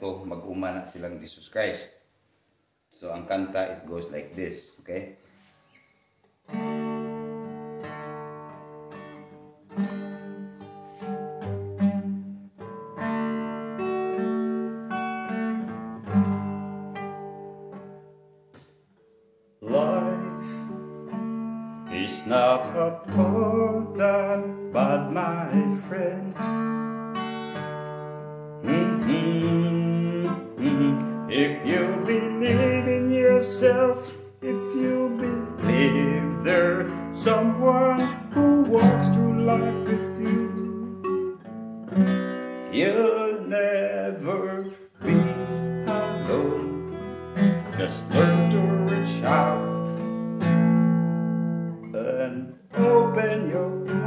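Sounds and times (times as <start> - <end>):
acoustic guitar strumming: 5.3 - 54.0
man singing: 19.6 - 20.8, 21.9 - 26.4, 28.6 - 41.4, 42.7 - 50.0, 51.8 - 54.0.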